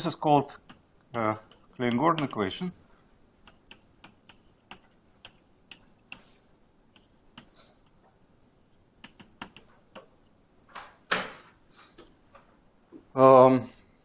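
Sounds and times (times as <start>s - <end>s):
chalk ticking on blackboard: 0.5s - 2.5s, 3.4s - 8.0s, 9.0s - 10.1s.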